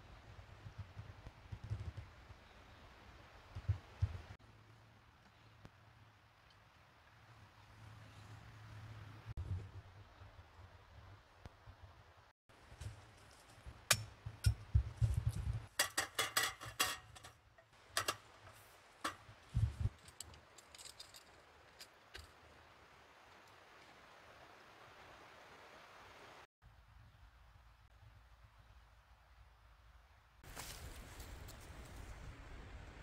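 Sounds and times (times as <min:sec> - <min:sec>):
faint forest ambience hiss: 0:02.0 - 0:09.4, 0:17.6 - 0:33.0
metal slats clattering: 0:15.7 - 0:17.4.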